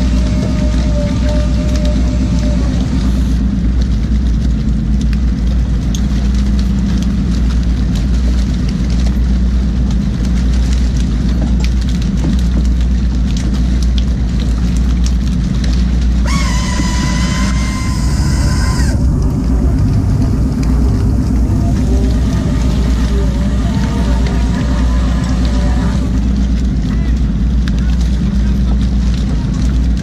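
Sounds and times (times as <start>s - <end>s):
steady high whine: 0.0s - 4.8s, 16.2s - 28.5s
boat engine running: 0.0s - 30.0s
water rushing past hull: 0.0s - 30.0s.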